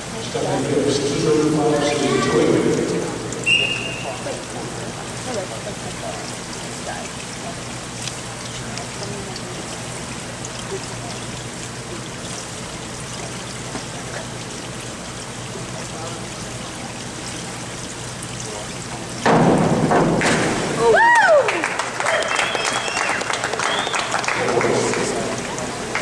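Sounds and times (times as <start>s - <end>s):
faint voices: 0.0s - 7.6s
water spray hissing: 2.7s - 6.2s.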